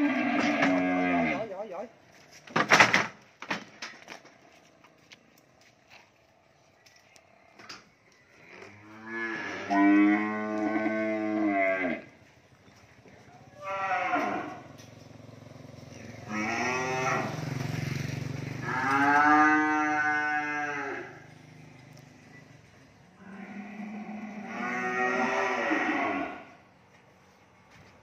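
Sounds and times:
cattle mooing: 0:00.0 - 0:01.5, 0:08.4 - 0:12.2, 0:13.5 - 0:14.7, 0:15.9 - 0:17.7, 0:18.6 - 0:21.2, 0:23.2 - 0:26.6.

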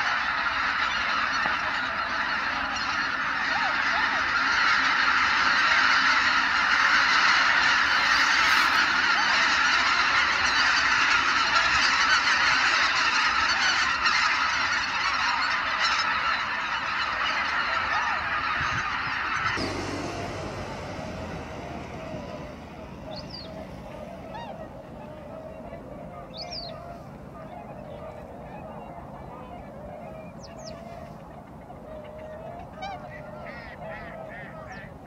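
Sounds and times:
flock of waterfowl calling: 0:00.0 - 0:35.0.

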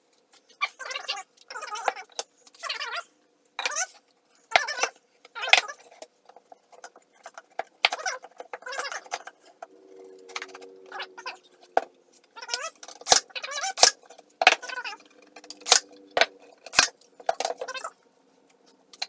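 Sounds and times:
glue bottle squeaking and sputtering: 0:04.6 - 0:09.5.

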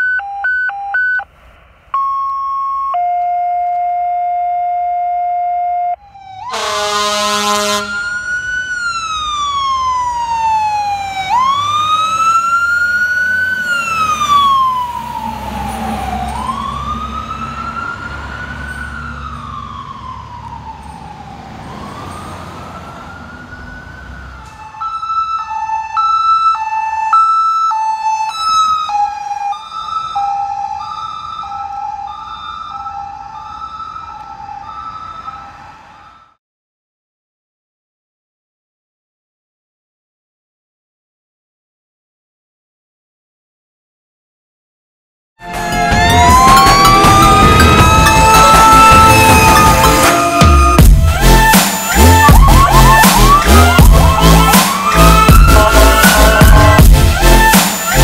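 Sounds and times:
truck engine rumble: 0:01.2 - 0:03.3, 0:06.0 - 0:36.4, 0:45.4 - 0:58.0
fire engine siren wailing: 0:01.9 - 0:36.4, 0:45.4 - 0:58.0
hi-lo siren: 0:02.0 - 0:36.4, 0:45.4 - 0:58.0
horn blast: 0:06.5 - 0:08.1, 0:45.4 - 0:58.0.

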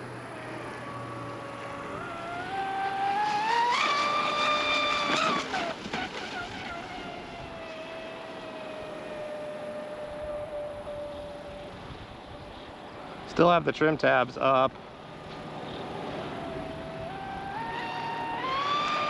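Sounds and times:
electric motor whining: 0:00.0 - 0:12.7, 0:15.2 - 0:19.0.

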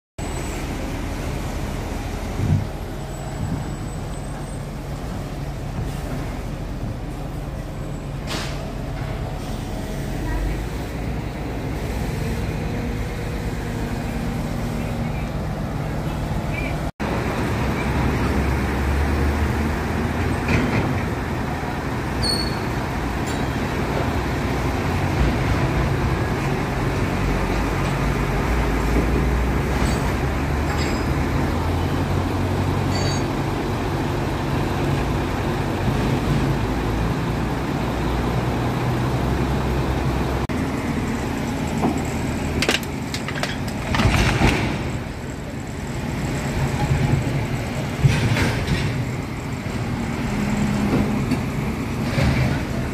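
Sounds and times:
diesel engine droning: 0:00.2 - 0:52.9.

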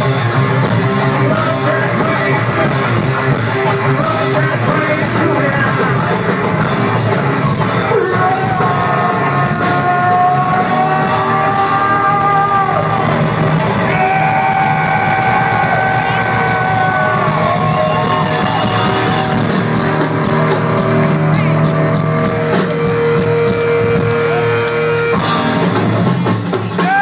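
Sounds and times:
heavy rock band playing live: 0:00.0 - 0:27.0
person singing: 0:01.1 - 0:06.4, 0:07.8 - 0:13.2.

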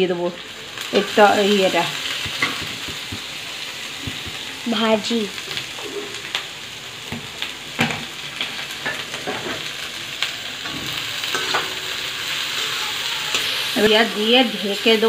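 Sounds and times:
vegetables sizzling in oil: 0:00.0 - 0:15.0
spatula scraping and clinking pan: 0:10.7 - 0:12.1.

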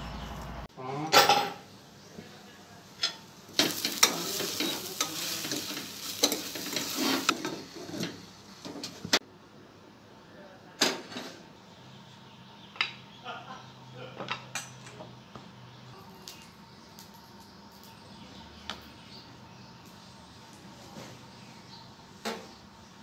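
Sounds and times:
food sizzling in pot: 0:03.2 - 0:09.2
spoon stirring and scraping: 0:03.6 - 0:08.2.

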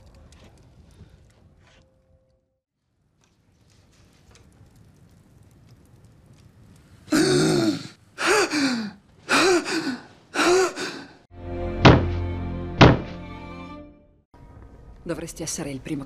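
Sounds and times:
man gasping and groaning: 0:07.1 - 0:11.2.

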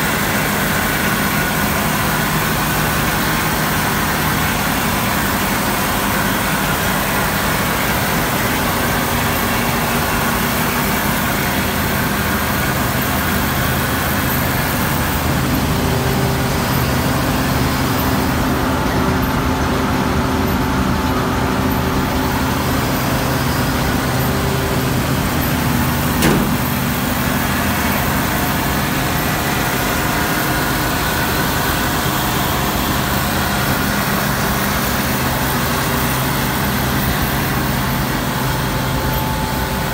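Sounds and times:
combine harvester engine droning: 0:00.0 - 0:39.9.

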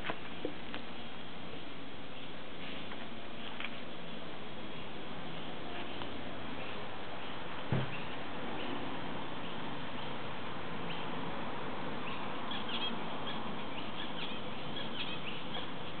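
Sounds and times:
finches chirping: 0:12.0 - 0:16.0.

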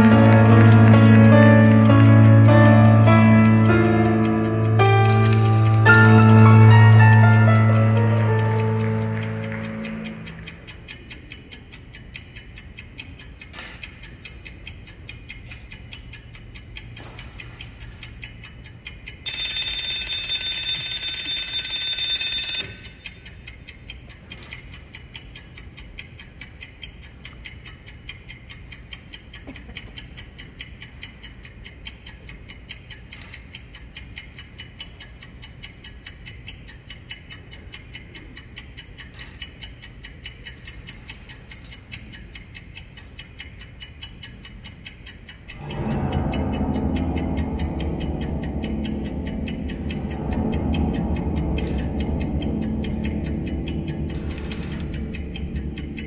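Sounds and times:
alarm clock bell ringing: 0:00.0 - 0:10.9, 0:13.4 - 0:14.7, 0:17.0 - 0:18.6, 0:19.2 - 0:23.5, 0:24.2 - 0:25.2, 0:33.2 - 0:34.6, 0:39.1 - 0:42.2, 0:45.4 - 0:56.0
alarm clock ticking: 0:00.0 - 0:56.0.

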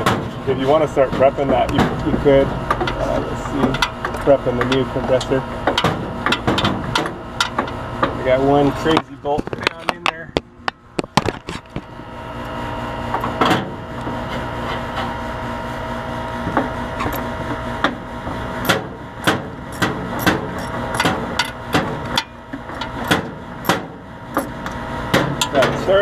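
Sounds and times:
steady machine hum: 0:00.0 - 0:26.0.

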